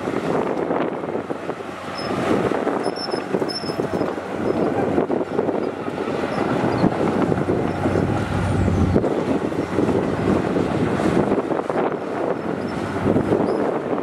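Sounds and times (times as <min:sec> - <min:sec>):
diesel engines running: 0:00.0 - 0:13.5
deep steady hum: 0:03.6 - 0:10.6.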